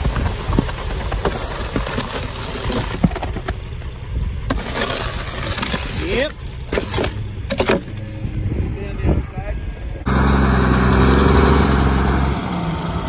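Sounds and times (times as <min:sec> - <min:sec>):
stones clicking and knocking: 0:00.0 - 0:08.4
truck engine rumbling: 0:00.0 - 0:13.0.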